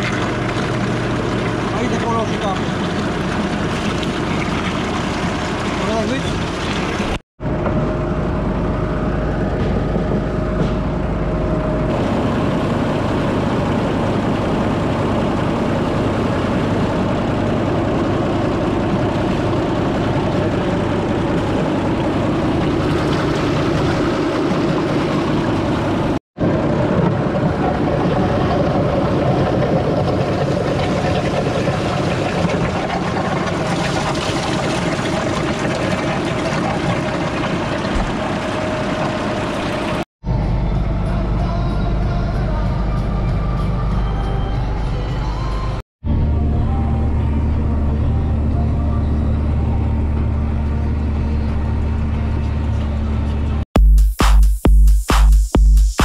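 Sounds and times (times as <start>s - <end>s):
water rushing into hopper: 0.0s - 7.2s, 11.8s - 40.1s
tractor diesel engine running: 0.0s - 53.6s.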